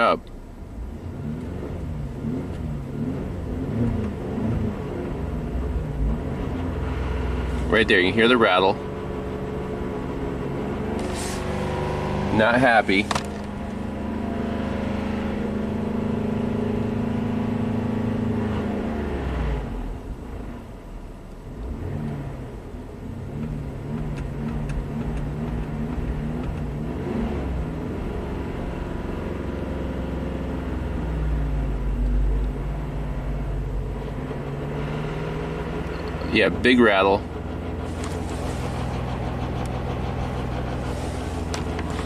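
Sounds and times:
car engine running under load: 0:00.0 - 0:42.0
engine rattle: 0:11.0 - 0:14.0, 0:22.6 - 0:26.8, 0:31.0 - 0:42.0.

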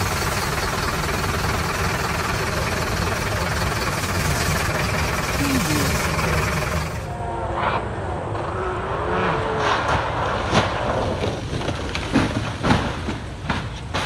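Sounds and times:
rally car engine rumble: 0:00.0 - 0:07.2
person calling out: 0:05.3 - 0:06.2.

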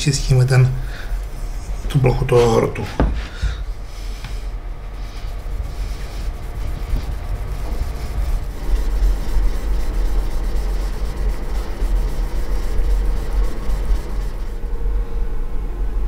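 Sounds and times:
blade rubbing on stone: 0:04.9 - 0:14.6.

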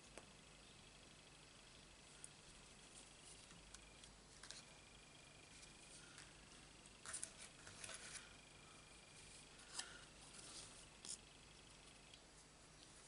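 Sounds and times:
faint high whine: 0:00.0 - 0:13.0
paper rustling: 0:05.5 - 0:08.4.

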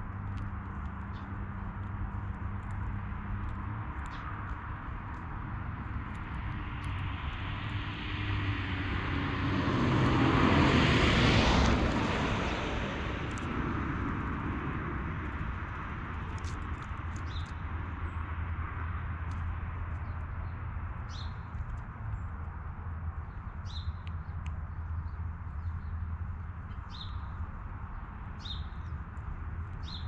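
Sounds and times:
vehicle passing: 0:03.2 - 0:16.6.

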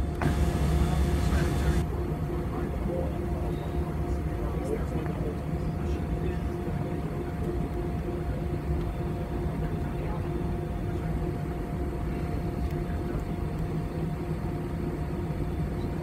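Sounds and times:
jet engine hum: 0:00.0 - 0:16.0.

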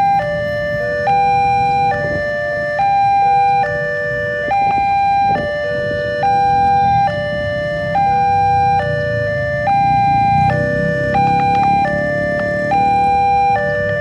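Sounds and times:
road traffic rumble: 0:00.0 - 0:14.0
level crossing alarm two-tone: 0:01.1 - 0:02.2, 0:02.8 - 0:03.9, 0:04.5 - 0:09.0, 0:09.6 - 0:14.0.

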